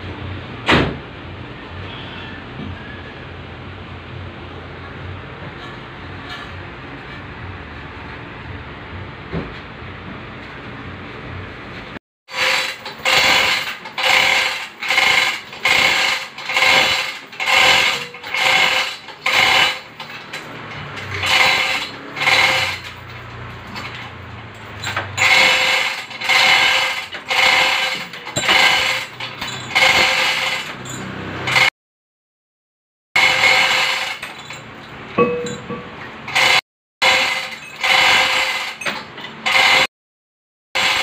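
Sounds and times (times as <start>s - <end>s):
chain hoist clattering: 12.3s - 31.7s, 33.2s - 39.9s, 40.8s - 41.0s.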